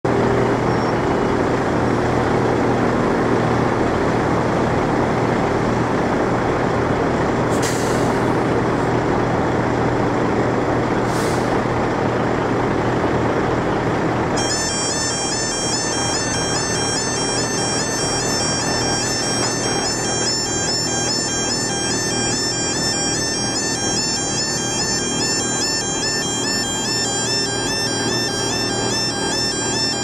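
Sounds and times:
diesel lorry engine rumble: 0.1 - 30.0
air brake hiss: 7.5 - 8.3, 11.1 - 11.6
level crossing alarm tone: 14.4 - 30.0.

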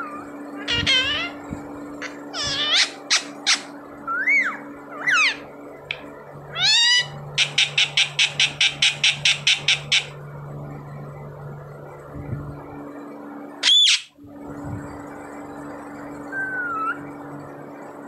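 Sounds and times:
parakeet squawking: 0.0 - 5.6, 6.5 - 10.2, 13.6 - 14.1, 16.3 - 17.1.

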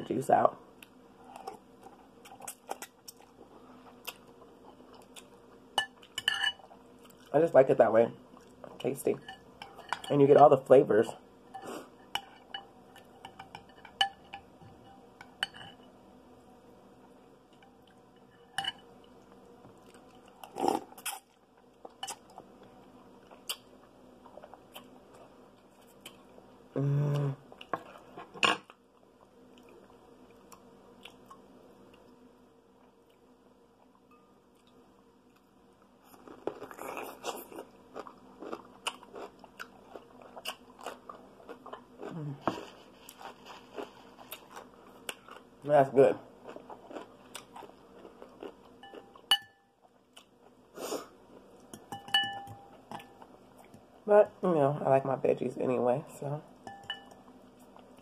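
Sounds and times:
fork clinking against glass bowl: 5.8 - 6.6, 11.5 - 15.8, 18.3 - 18.9, 48.8 - 49.7, 51.7 - 53.2, 56.6 - 57.2
utensil clinking on glass bowl: 5.8 - 6.6, 48.9 - 49.7, 51.7 - 53.2, 56.6 - 57.2
faint chewing: 33.8 - 45.5, 46.4 - 51.8.

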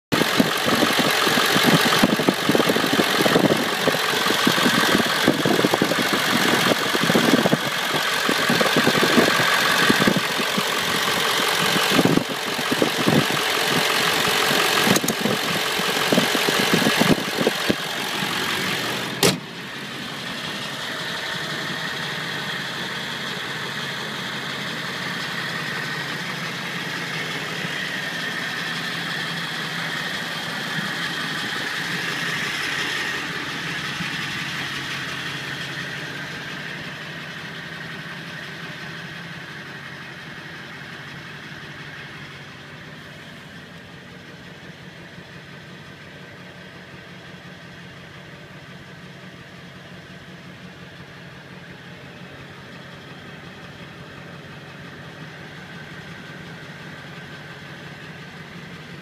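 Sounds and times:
diesel engine idling clatter: 0.1 - 59.0
sharp click: 19.2 - 19.5.

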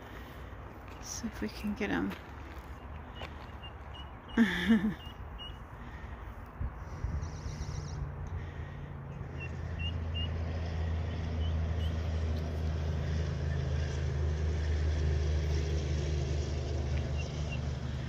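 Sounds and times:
motor engine humming: 0.0 - 18.0
high bird peeps: 2.7 - 5.6, 9.2 - 10.4.

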